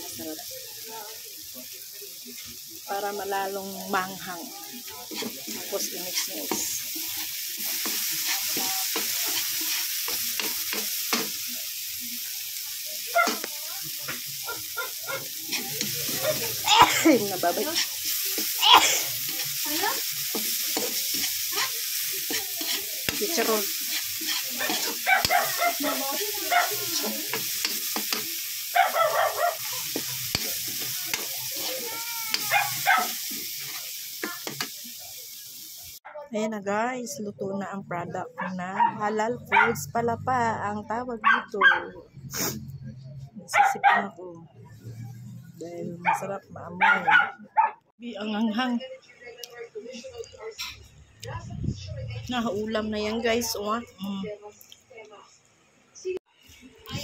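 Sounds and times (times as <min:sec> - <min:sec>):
food sizzling in a wok: 0:00.0 - 0:38.3, 0:39.0 - 0:41.2, 0:42.2 - 0:42.8, 0:44.8 - 0:46.5, 0:49.5 - 0:55.4, 0:56.0 - 0:57.0
metal spatula scraping a pan: 0:04.7 - 0:11.4, 0:14.9 - 0:28.4, 0:29.6 - 0:34.7.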